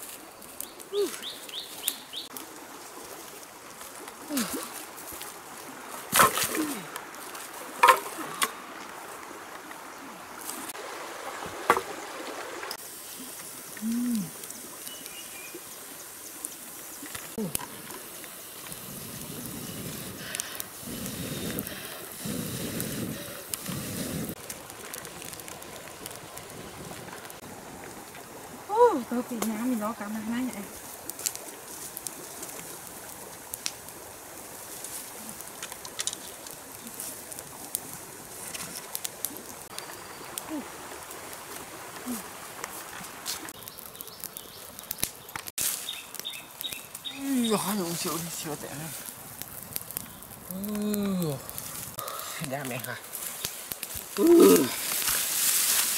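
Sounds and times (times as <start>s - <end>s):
campfire crackling: 0.0s - 55.9s
outdoor background hiss: 0.0s - 55.9s
firewood knocking together: 7.7s - 8.6s, 11.4s - 12.0s
bird cooing: 13.8s - 14.4s.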